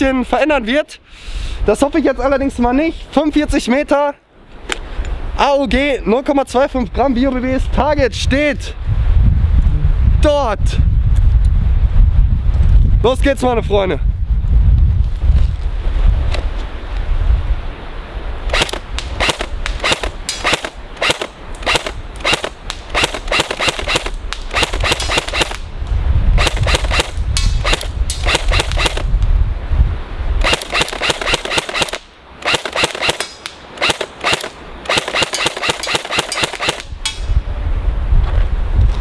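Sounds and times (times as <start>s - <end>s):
wind rumble on microphone: 4.8s - 31.9s, 35.6s - 39.0s
airsoft rifle firing: 18.5s - 25.6s, 26.4s - 29.1s, 30.4s - 36.9s.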